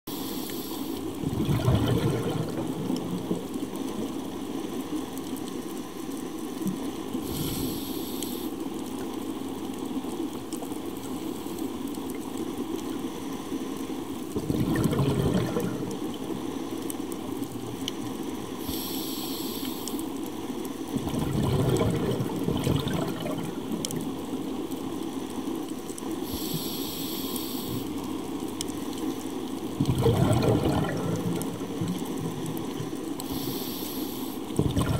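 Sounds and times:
regulator inhalation hiss: 0:00.1 - 0:01.0, 0:07.2 - 0:08.5, 0:18.6 - 0:20.0, 0:26.2 - 0:27.9, 0:33.2 - 0:34.4
steady underwater hiss: 0:00.1 - 0:34.9
exhaled bubbles rushing: 0:01.1 - 0:04.4, 0:14.3 - 0:16.5, 0:21.0 - 0:24.3, 0:29.7 - 0:33.2, 0:34.4 - 0:34.9.

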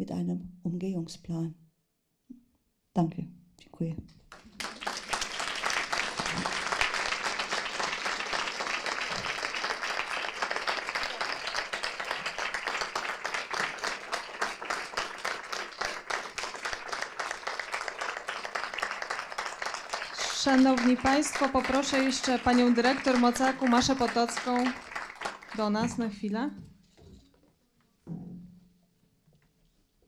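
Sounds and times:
audience applauding: 0:04.3 - 0:25.9.

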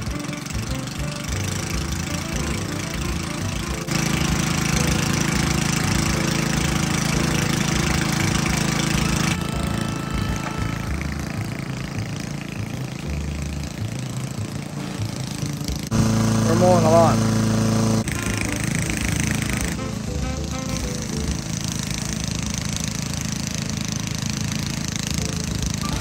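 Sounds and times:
lawn mower engine running: 0:00.0 - 0:26.0.

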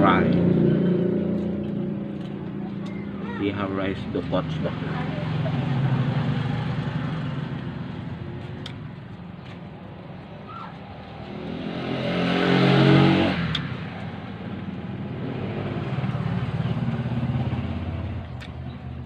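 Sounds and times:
engine running steadily: 0:00.0 - 0:11.5
motor vehicle engine passing by: 0:00.0 - 0:19.0.

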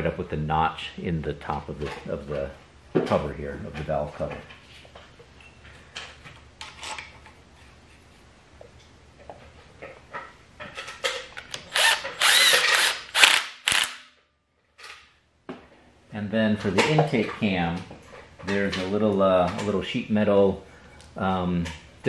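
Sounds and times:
power driver motor whine: 0:11.7 - 0:13.9.

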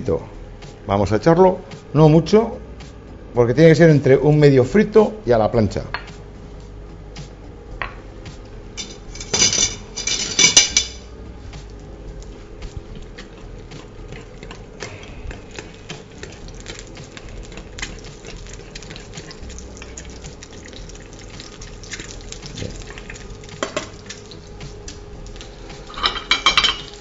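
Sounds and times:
metal spoon scraping a pan: 0:08.8 - 0:11.0
oil crackling and popping: 0:13.0 - 0:27.0.

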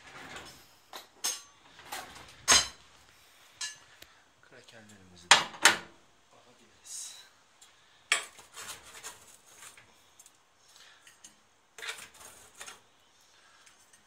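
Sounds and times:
metal spatula scraping baking tray: 0:08.2 - 0:09.9, 0:11.8 - 0:12.9.

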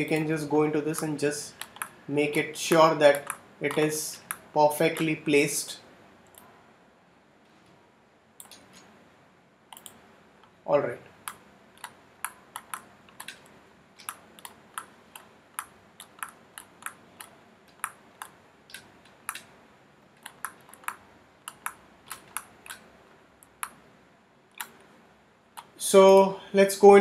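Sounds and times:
mouse and keyboard clicking: 0:00.9 - 0:02.0, 0:02.6 - 0:05.1, 0:09.7 - 0:10.0, 0:11.2 - 0:19.5, 0:20.2 - 0:23.8, 0:24.5 - 0:24.9.

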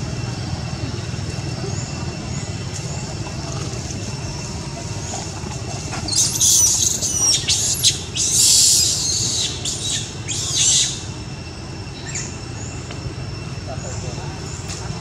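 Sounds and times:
steady background hum: 0:00.0 - 0:15.0
monkey screeches: 0:06.1 - 0:11.1.

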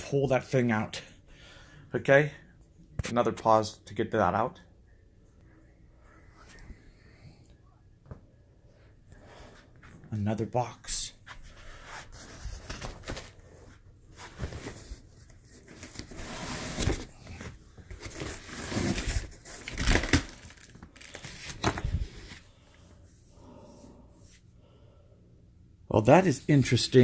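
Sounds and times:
cardboard scraping and tearing: 0:15.7 - 0:17.2, 0:18.0 - 0:22.0.

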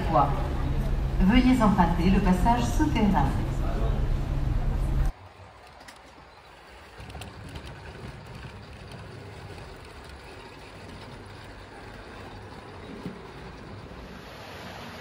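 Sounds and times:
train running rumble: 0:00.0 - 0:05.2, 0:06.5 - 0:14.8.

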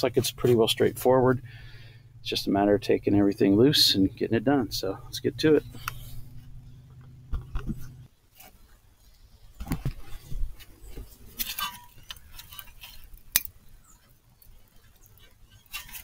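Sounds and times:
small metallic clicks and rattles: 0:11.4 - 0:13.6.

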